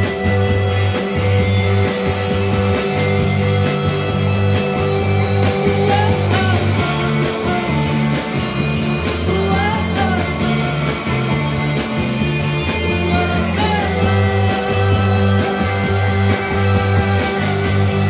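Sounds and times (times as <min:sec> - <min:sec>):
heavy bass line: 0:00.0 - 0:18.0
rock band playing live: 0:00.0 - 0:18.0.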